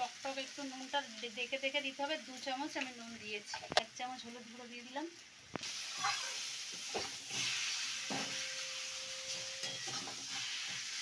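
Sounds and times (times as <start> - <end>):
frying sizzle: 0.0 - 11.0
metal spatula scraping pan: 5.9 - 11.0.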